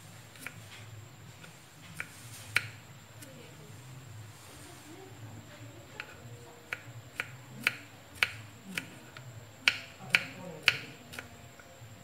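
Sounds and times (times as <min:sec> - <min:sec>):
knife chopping on wooden board: 0:01.4 - 0:02.8, 0:06.0 - 0:09.0, 0:09.6 - 0:11.3.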